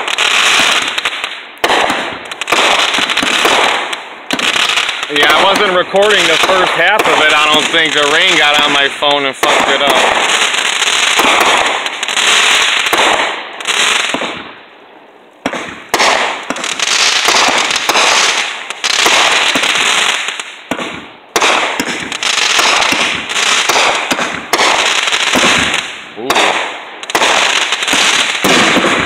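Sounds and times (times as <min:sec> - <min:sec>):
fireworks crackling bursts: 0:00.0 - 0:29.0
sharp firework bang: 0:09.4 - 0:10.4, 0:20.7 - 0:29.0
fireworks launch thumps: 0:15.4 - 0:18.3, 0:19.0 - 0:29.0.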